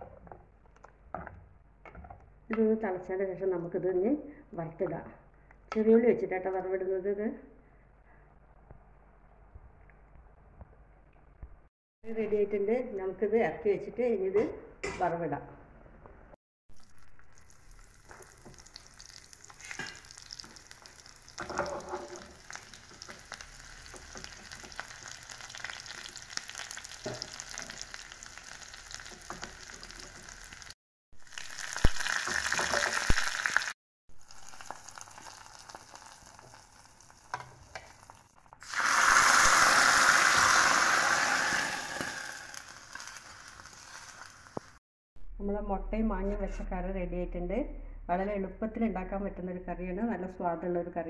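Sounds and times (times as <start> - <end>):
hot oil poured into curry: 16.8 - 44.7
leaves sizzling in oil: 16.8 - 44.8
shallots sizzling in oil: 16.8 - 44.8.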